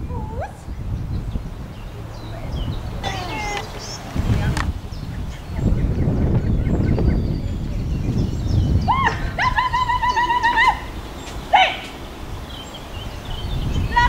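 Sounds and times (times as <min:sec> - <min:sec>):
wind rumble on microphone: 0:00.0 - 0:14.0
whistled calls: 0:00.3 - 0:04.1.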